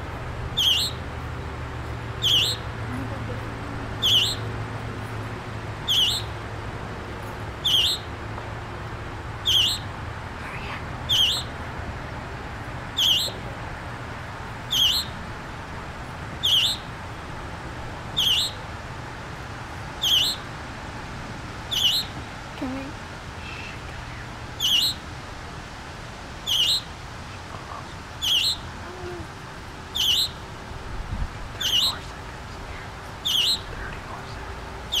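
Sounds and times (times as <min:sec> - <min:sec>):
fledgling bird calling: 0:00.5 - 0:01.0, 0:02.2 - 0:04.5, 0:05.8 - 0:06.4, 0:07.6 - 0:08.1, 0:09.4 - 0:09.9, 0:11.0 - 0:11.6, 0:12.9 - 0:13.4, 0:14.6 - 0:15.2, 0:16.4 - 0:17.0, 0:18.1 - 0:18.6, 0:20.0 - 0:20.5, 0:21.7 - 0:22.2, 0:23.4 - 0:25.1, 0:26.4 - 0:26.9, 0:28.2 - 0:30.4, 0:31.6 - 0:35.0.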